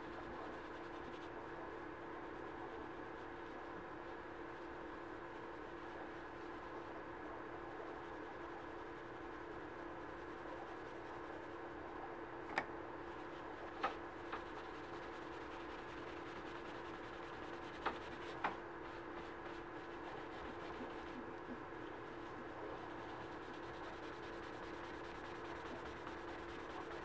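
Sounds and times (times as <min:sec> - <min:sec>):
steady hum: 0:00.0 - 0:27.0
soft scrubbing: 0:13.1 - 0:27.0.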